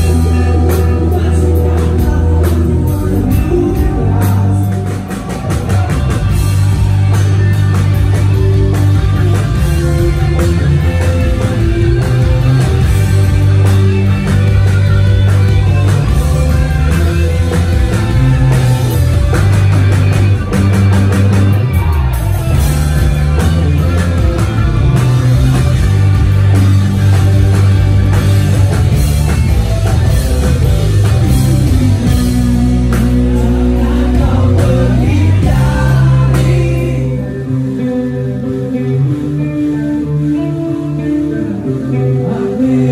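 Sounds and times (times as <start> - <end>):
drum kit: 0.0 - 40.2
bass guitar: 0.0 - 42.9
distorted electric guitars: 0.0 - 42.9.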